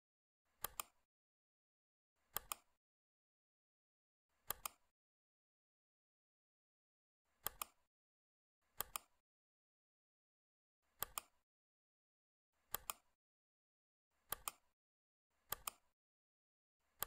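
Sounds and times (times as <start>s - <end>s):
computer mouse clicking: 0.6s - 1.0s, 2.2s - 2.8s, 4.4s - 4.9s, 7.4s - 7.9s, 8.7s - 9.2s, 11.0s - 11.4s, 12.7s - 13.2s, 14.2s - 14.7s, 15.5s - 16.0s.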